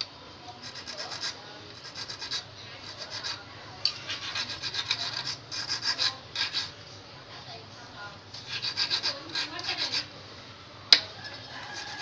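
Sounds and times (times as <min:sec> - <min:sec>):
hand file rasping on steel: 0:00.6 - 0:06.7, 0:08.5 - 0:10.1, 0:11.7 - 0:12.0.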